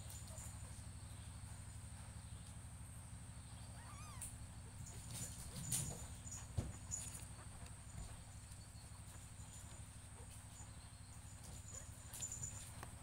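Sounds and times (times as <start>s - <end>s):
cat chirping call: 3.7s - 4.4s
kittens rustling: 3.8s - 13.0s.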